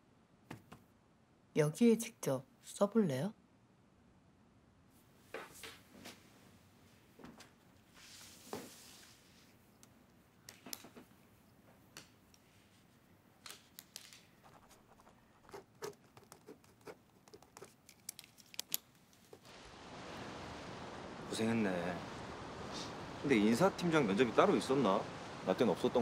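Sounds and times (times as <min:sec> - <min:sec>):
pen scratching on paper: 0:14.4 - 0:17.8.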